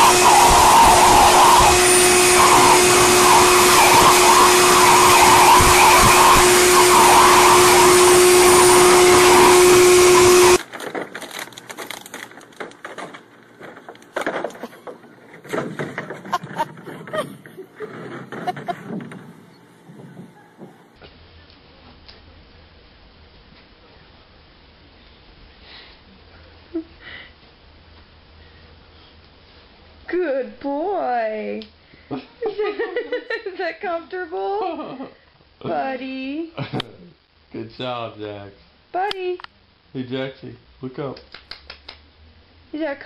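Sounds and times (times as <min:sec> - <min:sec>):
electric blower whining: 0:00.0 - 0:10.9, 0:16.0 - 0:19.3.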